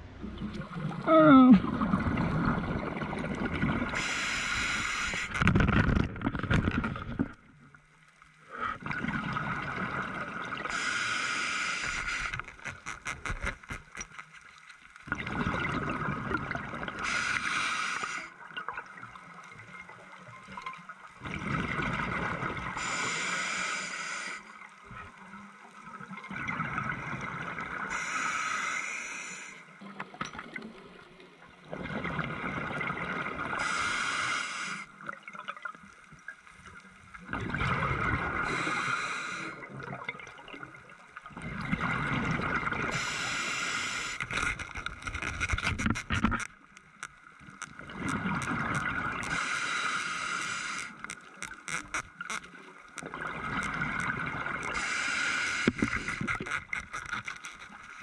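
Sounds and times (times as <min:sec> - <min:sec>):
bubbles gurgling: 0:00.0 - 0:04.0, 0:08.8 - 0:10.7, 0:15.1 - 0:17.0, 0:21.2 - 0:22.8, 0:26.0 - 0:27.9, 0:31.6 - 0:33.6, 0:37.2 - 0:38.8, 0:39.5 - 0:43.0, 0:47.6 - 0:49.4, 0:51.3 - 0:54.9
diver breathing through regulator: 0:04.0 - 0:05.5, 0:10.7 - 0:12.6, 0:17.0 - 0:18.3, 0:22.8 - 0:24.5, 0:27.9 - 0:29.7, 0:33.6 - 0:34.9, 0:38.4 - 0:39.6, 0:42.9 - 0:44.6, 0:49.3 - 0:51.1, 0:54.7 - 0:56.6.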